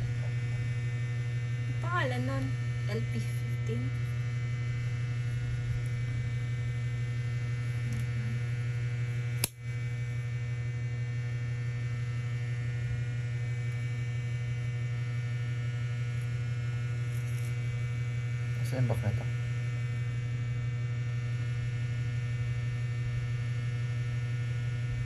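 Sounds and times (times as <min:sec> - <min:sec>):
low electrical hum: 0:00.0 - 0:25.0
sharp click: 0:09.4 - 0:09.6.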